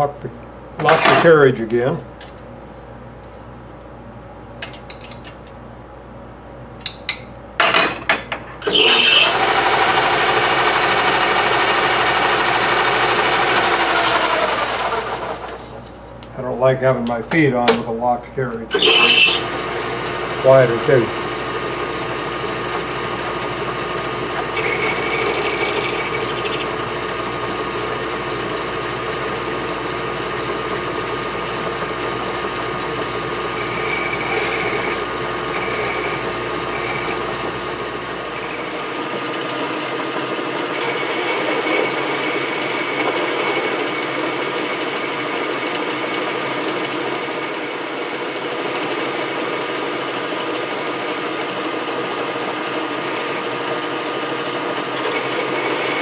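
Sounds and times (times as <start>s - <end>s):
faint high whine of cutting: 8.6s - 15.6s, 18.7s - 45.8s
metal lathe running: 8.6s - 15.7s, 18.7s - 56.0s.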